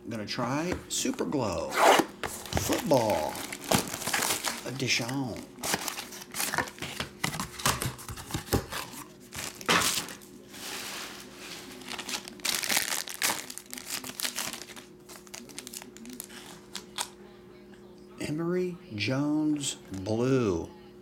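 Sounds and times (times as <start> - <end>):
plastic wrapper crinkling and tearing: 2.3 - 10.3, 11.2 - 17.1.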